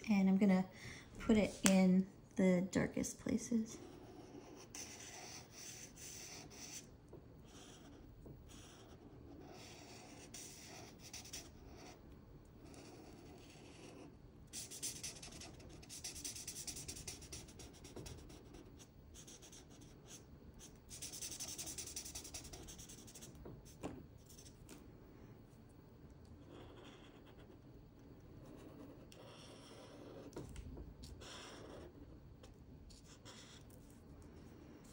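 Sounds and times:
marker scratching on paper: 0:03.8 - 0:12.0, 0:12.6 - 0:24.6, 0:26.4 - 0:27.6, 0:28.4 - 0:32.1, 0:32.9 - 0:33.8.

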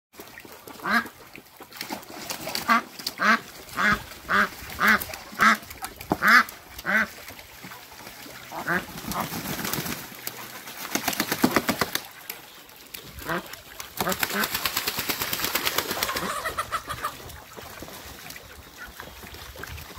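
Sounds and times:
ducks quacking: 0:00.8 - 0:01.2, 0:02.4 - 0:09.8, 0:13.1 - 0:14.7, 0:15.9 - 0:17.6.

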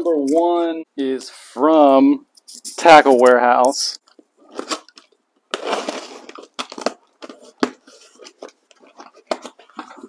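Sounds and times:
packing tape ripping: 0:04.4 - 0:10.0.

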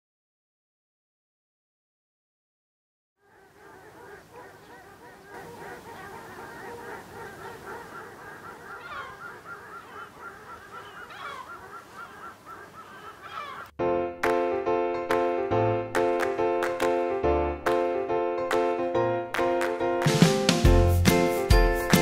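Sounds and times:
flock of geese calling: 0:03.2 - 0:13.7.

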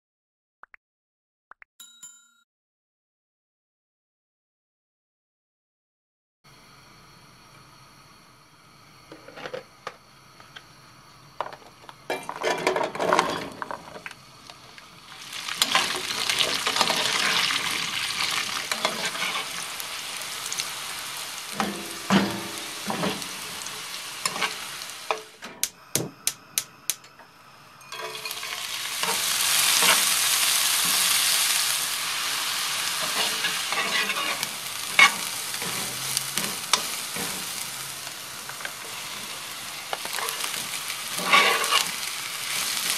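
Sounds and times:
food sizzling in oil: 0:12.1 - 0:25.4, 0:27.4 - 0:42.9
pan and spoon knocks: 0:21.6 - 0:23.2.

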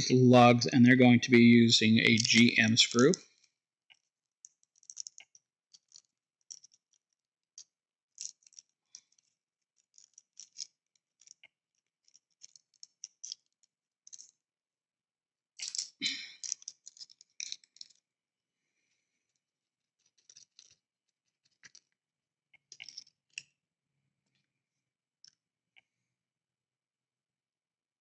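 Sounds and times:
clicks and rattling: 0:15.6 - 0:18.0, 0:20.1 - 0:20.8, 0:22.7 - 0:23.5.

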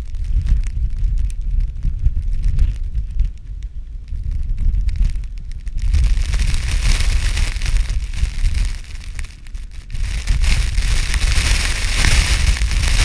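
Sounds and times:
wind rumbling on microphone: 0:00.0 - 0:13.0
ice and snow hissing: 0:04.6 - 0:13.0.

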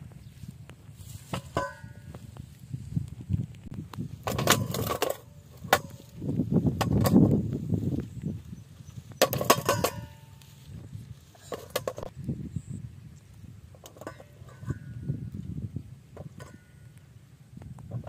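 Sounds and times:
rustle of dry grass: 0:00.0 - 0:18.0
metal bowl ringing: 0:01.5 - 0:02.1, 0:09.4 - 0:10.4.

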